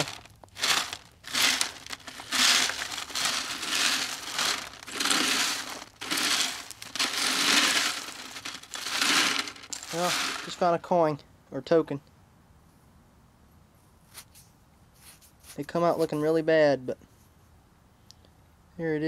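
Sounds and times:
dirt scraping across wire mesh: 0.0s - 10.8s.

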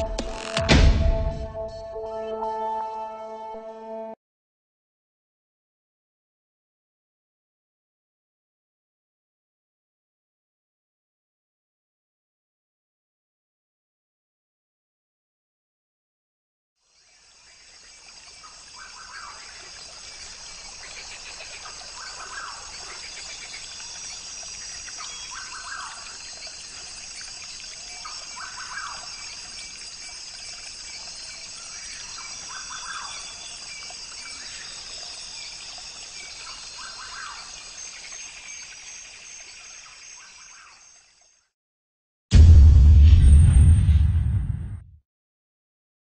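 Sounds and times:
high-pitched insect chorus: 16.8s - 41.5s
repeating insect call: 16.8s - 41.5s.

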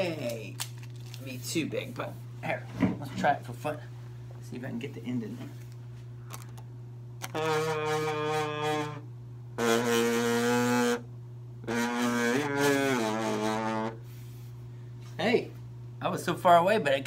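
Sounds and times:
man humming into giant kazoo: 7.2s - 14.0s.

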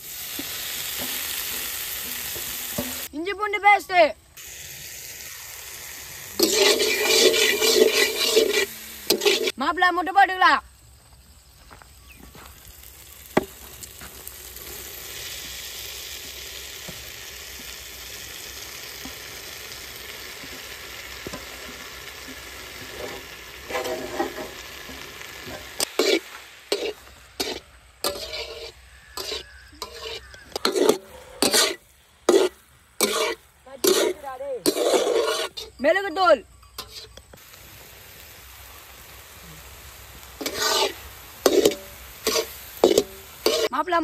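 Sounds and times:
food sizzling in a pan: 0.0s - 44.0s
metal ladle scraping pan: 0.3s - 3.1s, 6.4s - 9.6s, 20.3s - 35.9s, 36.5s - 37.4s, 40.4s - 43.8s.

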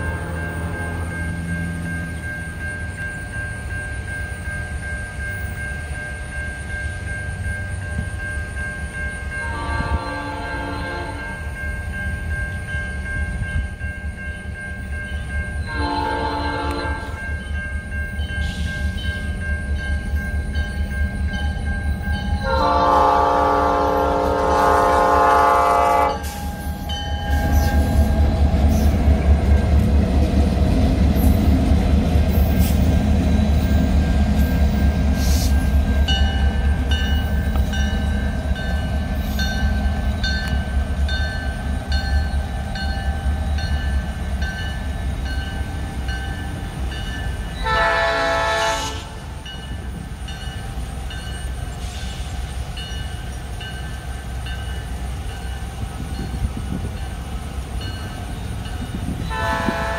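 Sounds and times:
locomotive air horn: 0.0s - 1.0s, 9.4s - 11.3s, 15.7s - 17.2s, 22.4s - 26.4s, 47.6s - 49.3s, 59.3s - 59.9s
locomotives rumbling past: 9.3s - 59.9s.

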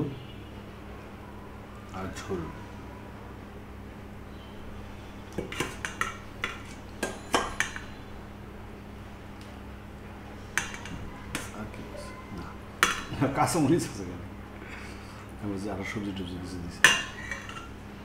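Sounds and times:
spoon clinking on steel dishes: 5.4s - 8.0s, 10.5s - 11.6s, 12.8s - 13.3s, 16.8s - 17.8s.

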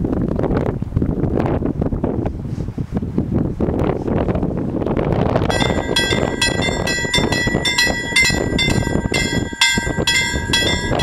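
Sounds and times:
wind rumble on microphone: 0.0s - 11.0s
level crossing warning bells: 5.5s - 11.0s.

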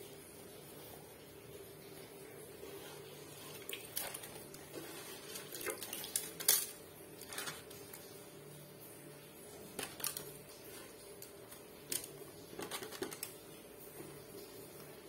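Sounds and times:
banana leaves crackling and rustling: 3.2s - 8.4s, 9.6s - 13.4s.

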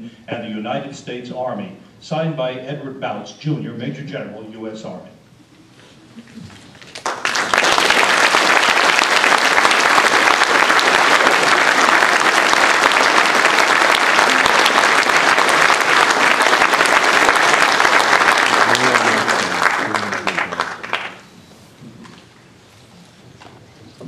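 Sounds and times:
audience applauding: 6.7s - 21.3s.

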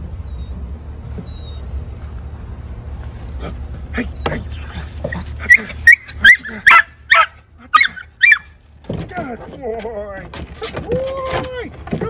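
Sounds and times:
puppy yipping: 1.2s - 1.7s, 5.1s - 8.6s.

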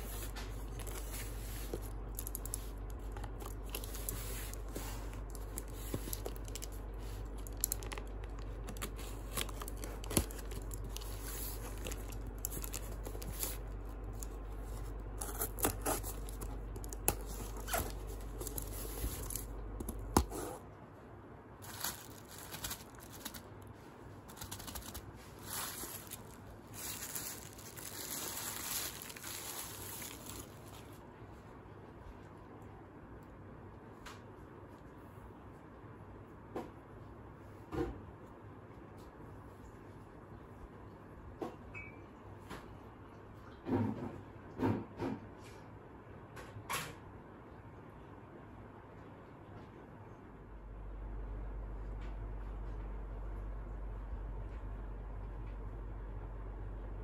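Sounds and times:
bubble wrap crinkling: 0.0s - 20.6s, 21.6s - 31.0s
cardboard rustling and scraping: 0.0s - 20.7s, 21.6s - 31.0s
low steady hum: 0.0s - 44.6s, 45.4s - 57.0s
packing tape tearing: 0.6s - 20.6s, 21.6s - 23.5s, 24.3s - 31.0s.

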